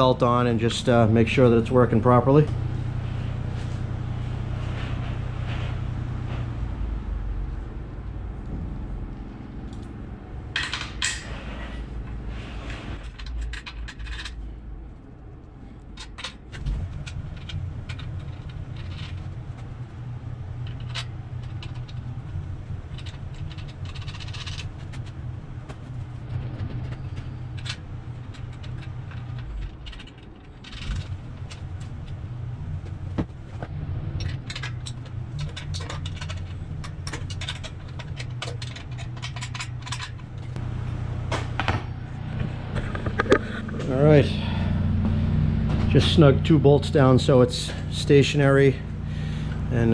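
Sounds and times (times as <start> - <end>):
steady low hum: 0.0 - 49.9.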